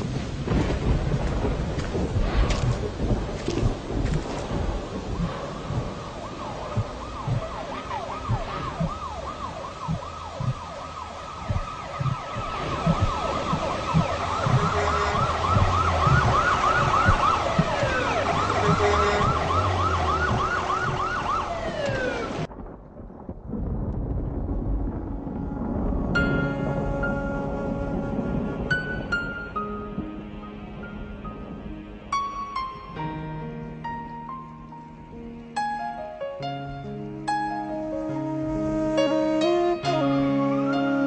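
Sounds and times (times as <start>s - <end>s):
emergency sirens wailing: 0.0s - 22.6s, 25.3s - 32.1s
low thuds: 0.0s - 32.2s.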